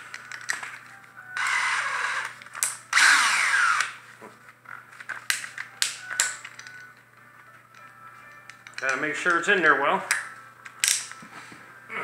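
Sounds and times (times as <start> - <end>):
cordless drill motor: 1.4 - 2.3, 2.9 - 4.0.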